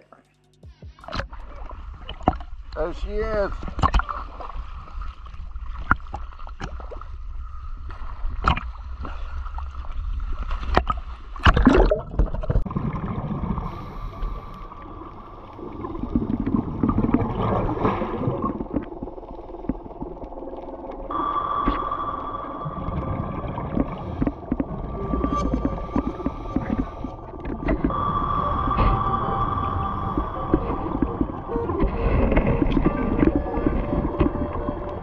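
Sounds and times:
underwater gurgling noise: 0:01.0 - 0:35.0
water sloshing and splashing: 0:01.0 - 0:35.0.

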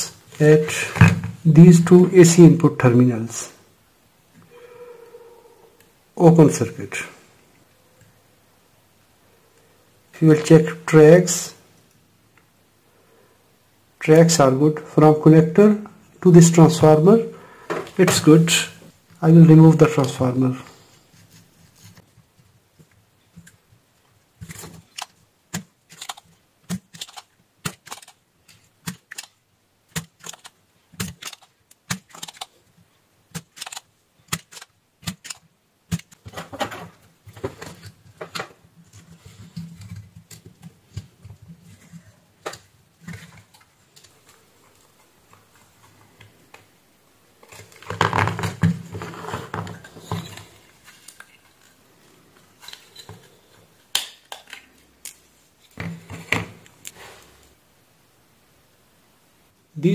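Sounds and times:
circuit board rustling and scraping: 0:19.8 - 0:23.7, 0:33.4 - 0:46.3, 0:47.4 - 0:53.9.

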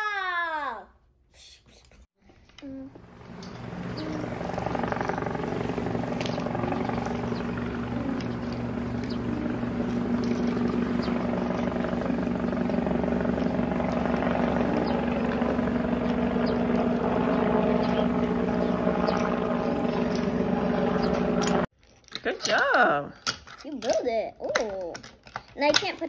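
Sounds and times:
propeller aircraft engine drone: 0:02.5 - 0:21.7.

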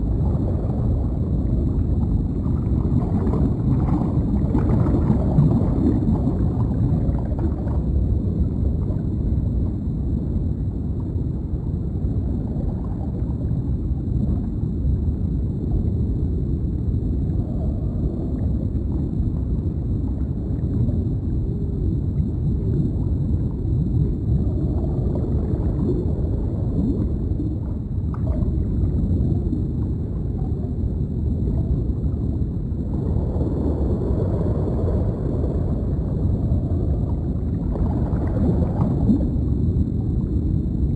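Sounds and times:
gurgling bubbles: 0:00.0 - 0:40.9
low underwater rumble: 0:00.0 - 0:40.9.

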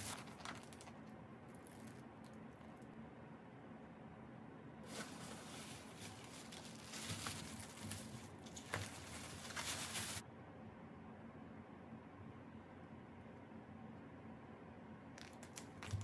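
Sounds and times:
plastic bag crinkling: 0:00.0 - 0:02.8, 0:04.9 - 0:10.2, 0:15.2 - 0:16.0.

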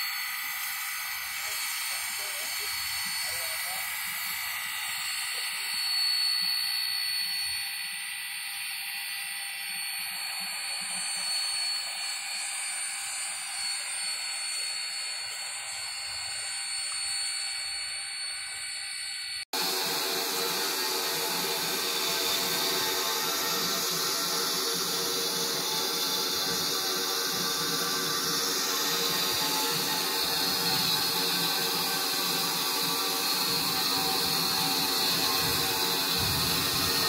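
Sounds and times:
steam locomotive hissing: 0:00.0 - 0:07.4, 0:19.6 - 0:37.0
high whine: 0:00.0 - 0:37.0.

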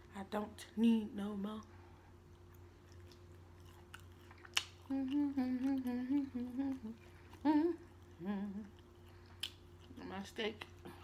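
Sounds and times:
woman humming: 0:04.8 - 0:08.8.

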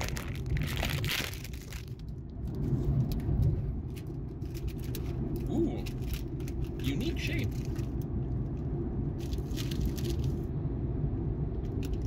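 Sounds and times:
plastic bag crinkling: 0:00.0 - 0:02.1
car rumble: 0:00.0 - 0:12.0.

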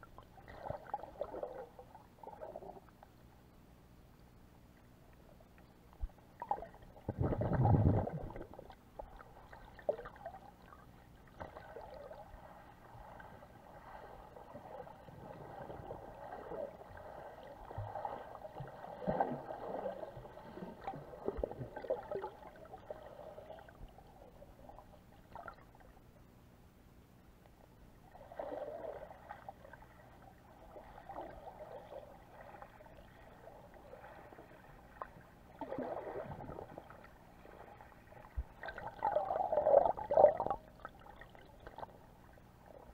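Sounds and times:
underwater gurgling and swishing: 0:00.0 - 0:26.8, 0:27.6 - 0:42.9
low water rush: 0:06.1 - 0:25.8.

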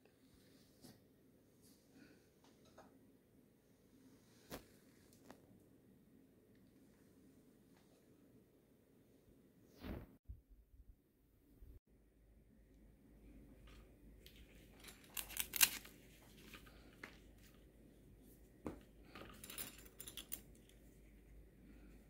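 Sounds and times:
metal clips clicking: 0:14.8 - 0:15.9.

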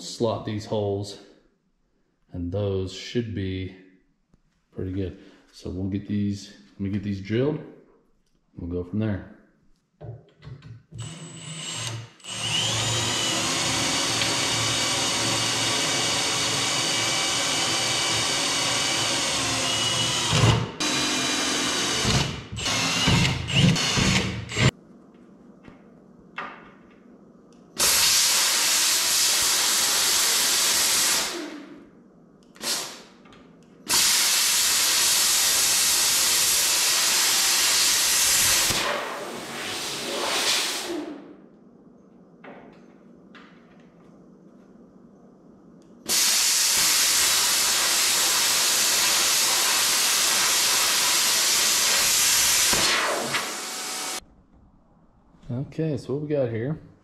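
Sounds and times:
drill boring into steel: 0:11.0 - 0:24.7, 0:27.8 - 0:31.6, 0:33.9 - 0:38.9, 0:46.1 - 0:54.2.

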